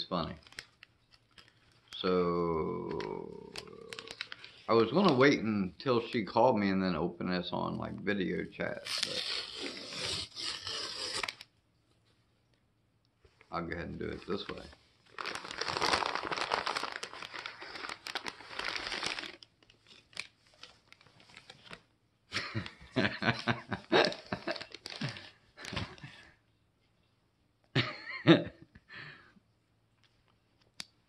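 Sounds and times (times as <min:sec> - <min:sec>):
packaging tearing and crinkling: 0:00.4 - 0:02.0, 0:02.8 - 0:05.2, 0:08.7 - 0:11.5, 0:14.5 - 0:21.8, 0:23.9 - 0:26.1
person laughing: 0:22.3 - 0:26.0, 0:27.8 - 0:28.8.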